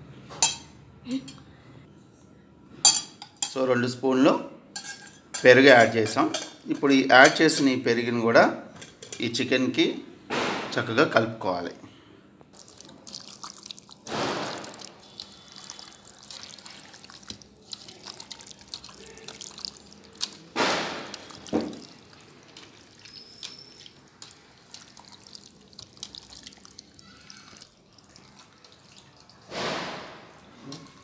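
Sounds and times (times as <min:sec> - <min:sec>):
raw meat squelching by hand: 0:12.6 - 0:29.5.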